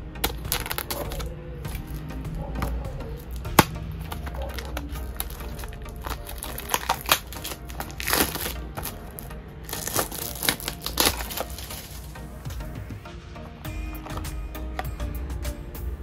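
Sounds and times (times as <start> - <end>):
plastic shrink wrap crinkling: 0.2 - 12.2.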